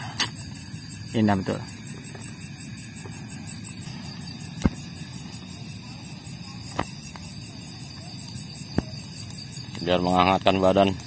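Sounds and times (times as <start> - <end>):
crickets and insects chirping: 0.0 - 11.0
sharp pops: 4.5 - 5.1, 6.7 - 7.3, 8.7 - 9.8.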